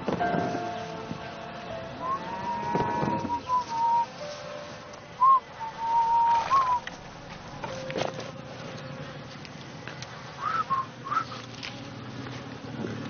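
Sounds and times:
person whistling a slow tune: 0:02.0 - 0:04.2, 0:05.2 - 0:06.9, 0:10.4 - 0:11.4.

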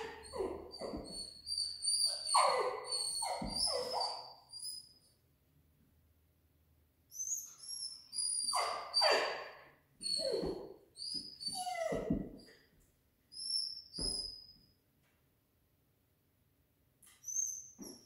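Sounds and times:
dog whining and yelping: 0:00.0 - 0:05.0, 0:07.1 - 0:12.6.

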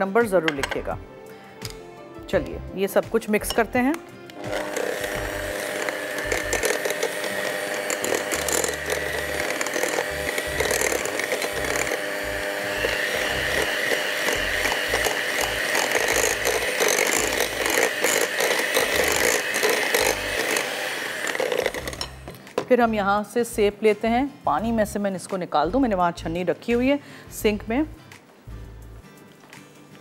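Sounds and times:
electric mixer whining: 0:04.4 - 0:22.4.

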